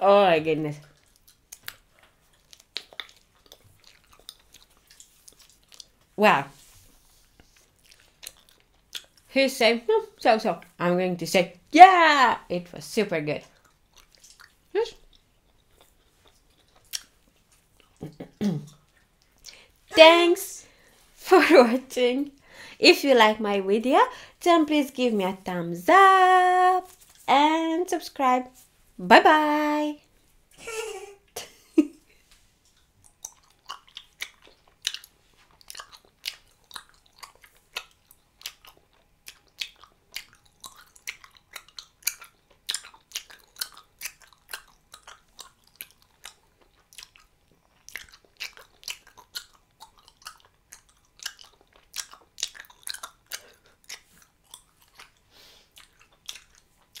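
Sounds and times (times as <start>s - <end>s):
gum chewing smacks: 0.8s - 6.2s, 6.9s - 9.3s, 13.4s - 20.1s, 32.6s - 57.0s.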